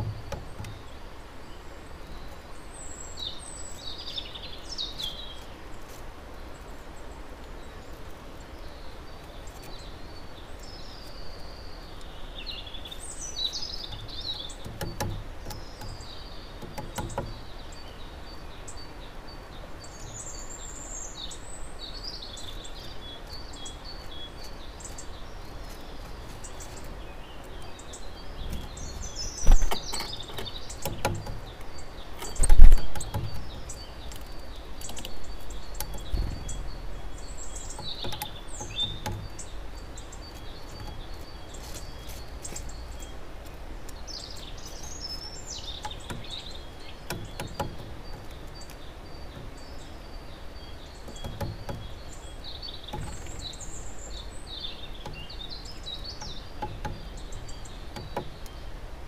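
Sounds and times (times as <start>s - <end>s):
loud thumps: 0.0s - 0.8s, 28.4s - 31.5s, 32.3s - 33.7s, 35.8s - 39.6s
woodpecker tapping on wood: 0.0s - 1.0s, 12.8s - 18.4s, 22.5s - 58.9s
songbirds singing: 0.0s - 59.0s.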